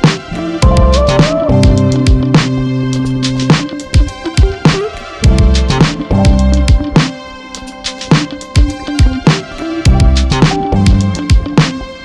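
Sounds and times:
deep bass notes dropping in pitch: 0.6 - 3.5, 5.2 - 7.0.

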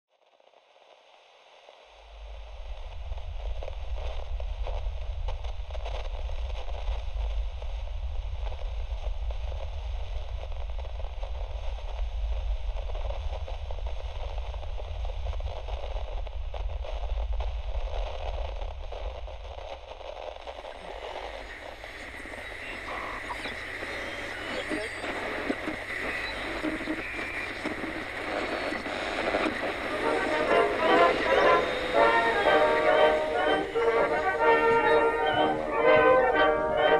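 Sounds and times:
crackling noise: 0.1 - 36.9
heavy low rumble: 2.1 - 24.0
thin high hiss: 20.7 - 36.9.

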